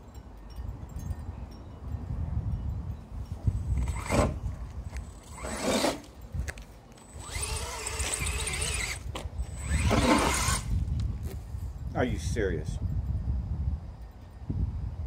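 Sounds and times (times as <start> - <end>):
electric motor and gears whining: 3.7 - 6.2, 6.9 - 10.9.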